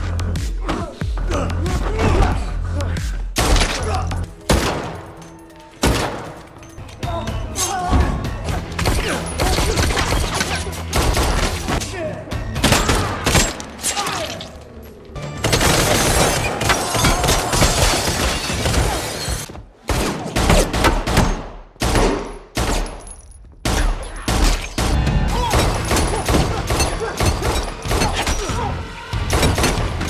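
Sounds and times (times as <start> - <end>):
background music: 0.0 - 30.0
gunfire: 4.5 - 5.1, 5.8 - 6.5
glass shattering: 15.4 - 19.5.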